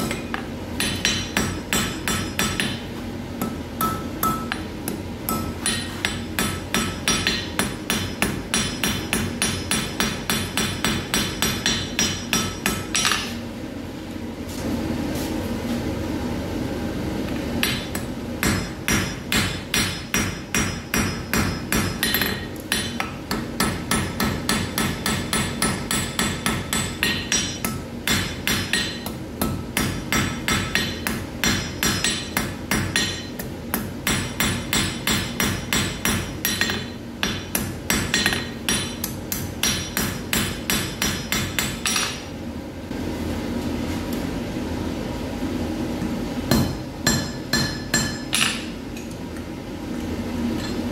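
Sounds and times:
hammer blows on anvil: 0.0s - 13.3s.

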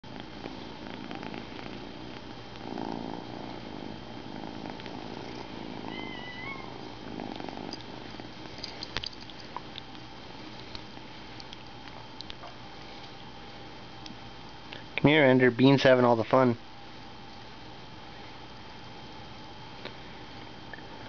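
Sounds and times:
kitten purring: 0.1s - 12.6s.

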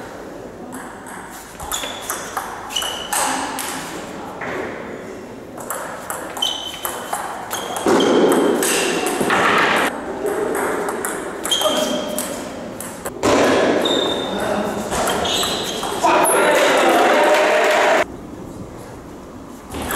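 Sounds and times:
table tennis ball hits: 0.7s - 4.6s, 5.6s - 17.8s
voices: 13.8s - 18.1s.

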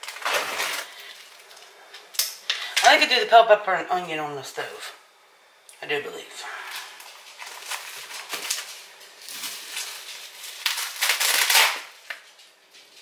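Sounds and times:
rustling and crackling handling noise: 6.7s - 13.0s.

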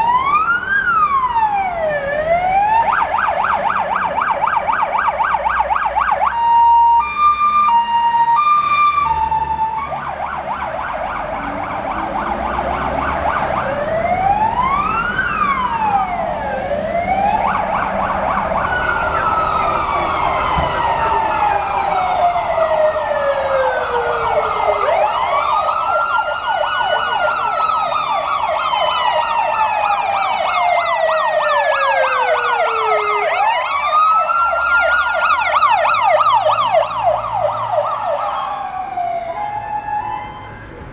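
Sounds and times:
electronic yelp siren: 0.0s - 40.9s
two-tone hi-lo siren: 0.0s - 40.9s
wailing sirens: 0.0s - 40.9s.

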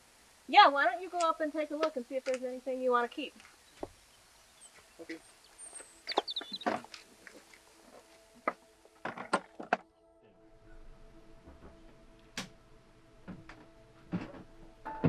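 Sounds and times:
soft sustained music chords: 3.6s - 15.0s.

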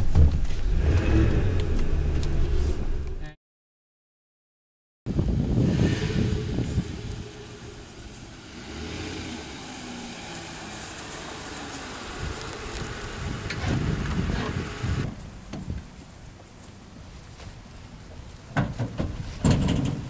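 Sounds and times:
low thumps: 5.1s - 10.2s
truck engine idling: 5.4s - 15.5s.

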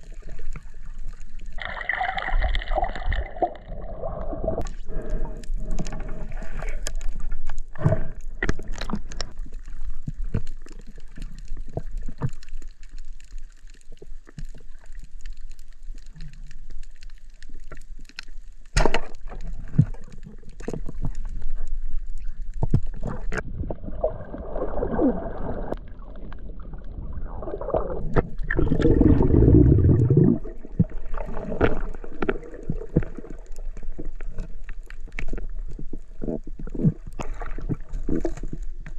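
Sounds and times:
rushing bubbling water: 0.0s - 17.8s, 18.8s - 38.9s
muffled underwater bubbling: 19.5s - 34.5s.

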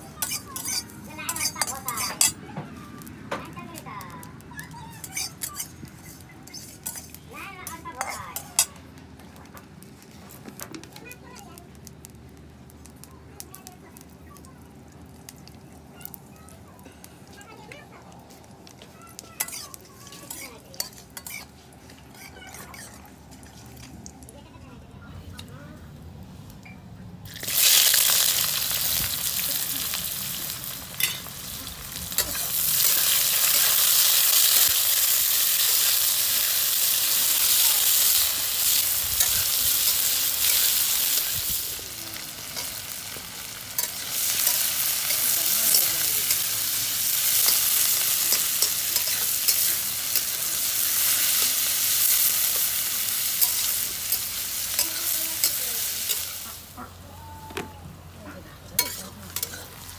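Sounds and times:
onions sizzling in oil: 0.0s - 9.0s, 9.7s - 24.2s, 27.3s - 57.4s, 58.0s - 59.9s
metal spatula scraping pan: 0.2s - 2.4s, 5.0s - 8.7s, 19.4s - 23.6s, 58.8s - 59.9s.

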